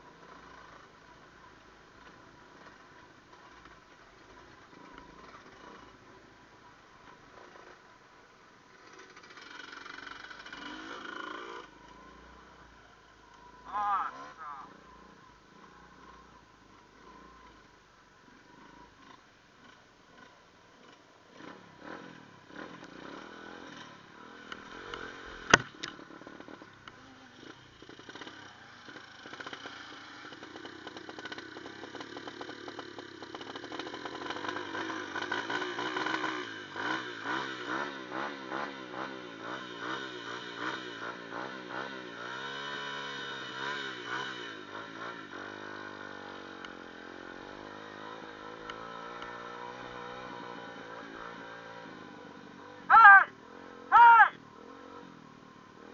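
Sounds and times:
dirt bike engine revving: 8.7 - 12.7, 13.5 - 16.4, 18.5 - 55.9.

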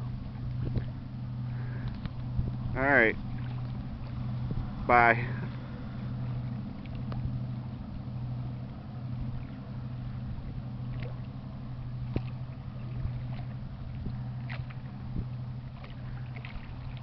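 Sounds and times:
diesel engine drone: 0.0 - 17.0
faint clicks: 1.8 - 2.2.

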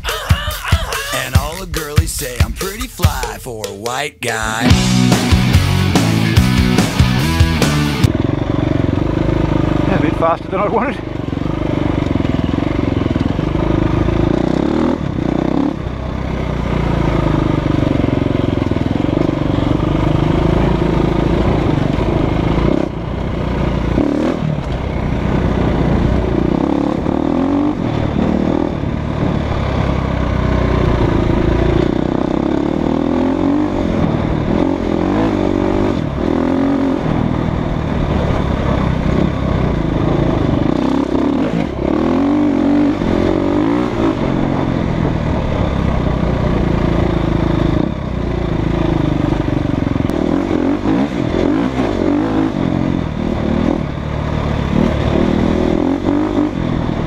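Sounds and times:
motorcycle engine revving: 4.7 - 57.0.

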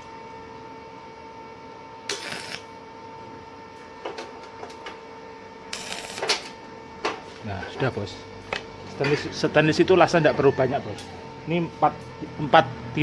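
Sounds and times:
steady hum: 0.0 - 13.0
welding arc crackling: 2.1 - 2.8, 5.6 - 6.6.

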